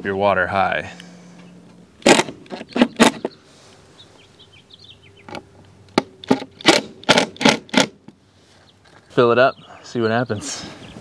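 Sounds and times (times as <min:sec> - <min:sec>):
impact driver driving screws: 0:06.2 - 0:08.0.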